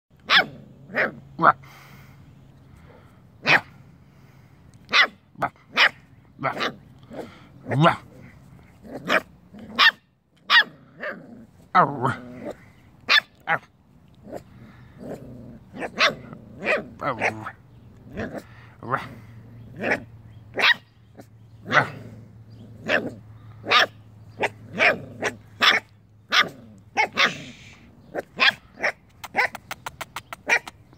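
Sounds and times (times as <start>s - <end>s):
puppies yapping: 5.7s - 11.2s, 19.6s - 30.9s.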